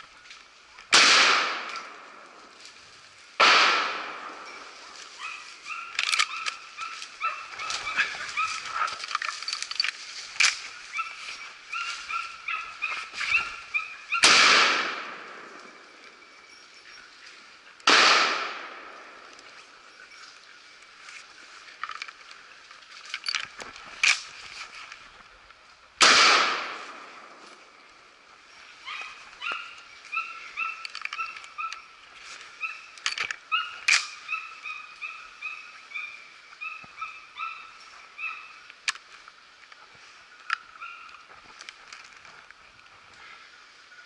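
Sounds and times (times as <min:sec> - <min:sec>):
gunshot: 0:00.9 - 0:01.9, 0:03.4 - 0:04.4, 0:14.2 - 0:15.5, 0:17.9 - 0:18.9, 0:26.0 - 0:27.1.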